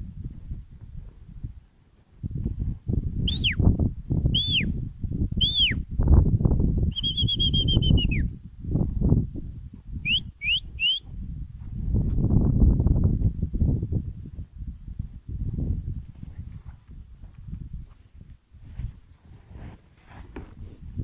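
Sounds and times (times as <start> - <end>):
person whistling: 3.3 - 3.7, 4.4 - 4.8, 5.4 - 5.8, 6.9 - 8.3, 10.0 - 11.1
trampling through deep snow: 16.0 - 21.0.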